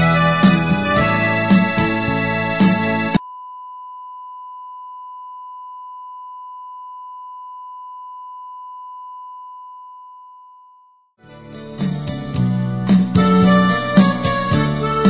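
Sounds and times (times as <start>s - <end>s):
electronic sine tone: 3.2s - 11.1s.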